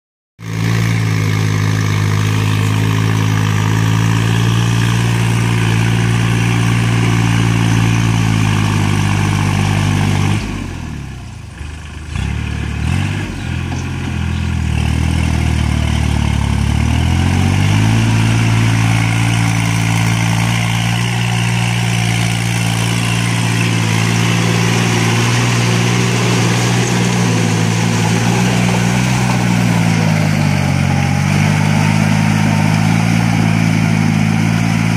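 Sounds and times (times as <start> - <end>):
tractor diesel engine under load: 0.4 - 34.9.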